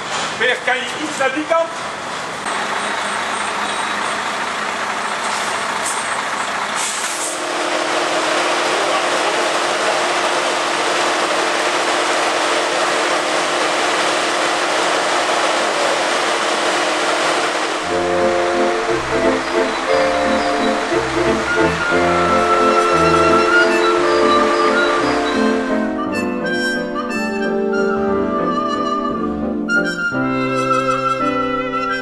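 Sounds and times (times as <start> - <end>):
heavy diesel engines running: 0.0 - 32.0
steady hum: 7.3 - 27.6.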